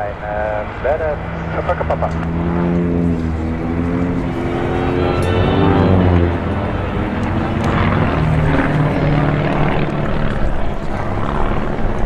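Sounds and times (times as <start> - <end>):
propeller planes droning overhead: 0.0 - 12.0.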